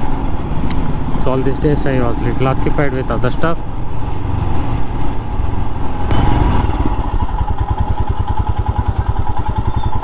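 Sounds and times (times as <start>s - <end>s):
motorcycle engine idling: 6.1s - 10.0s.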